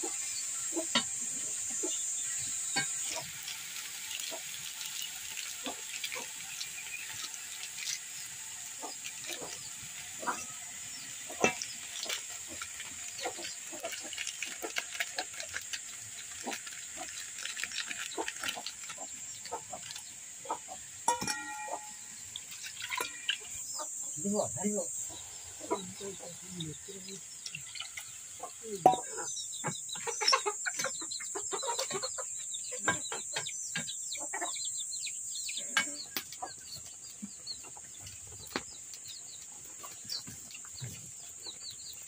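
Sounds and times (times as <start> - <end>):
oil sizzling in a wok: 0.0 - 42.0
water pouring: 0.9 - 29.0.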